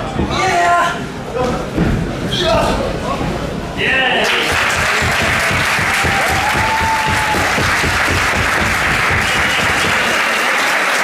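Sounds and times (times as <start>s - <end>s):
crowd applauding: 4.2s - 11.0s.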